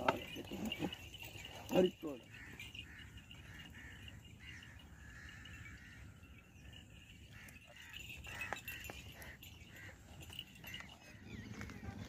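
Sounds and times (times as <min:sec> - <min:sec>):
wooden plough clinks and knocks: 0:00.0 - 0:02.2
birds chirping: 0:00.0 - 0:12.0.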